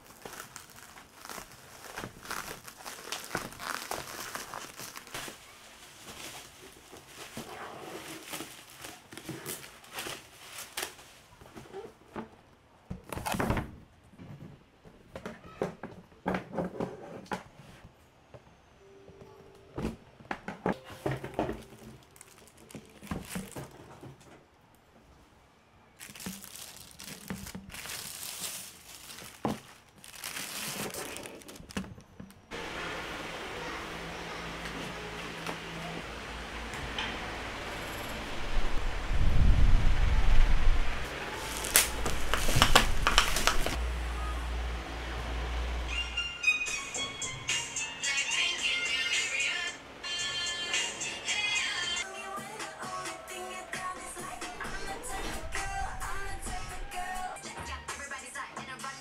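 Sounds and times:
plastic packaging crinkling and tearing: 0.0 - 11.3, 21.4 - 23.8, 26.0 - 32.1, 41.0 - 43.8.

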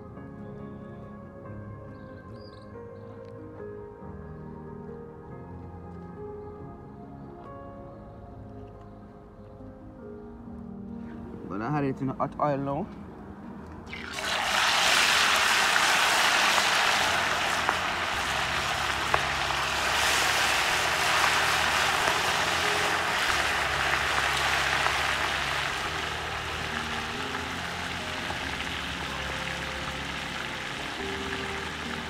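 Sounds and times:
fish deep-frying in oil: 13.9 - 32.0.

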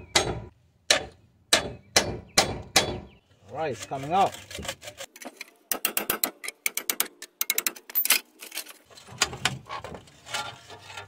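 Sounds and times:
metal scraping: 7.8 - 11.0.

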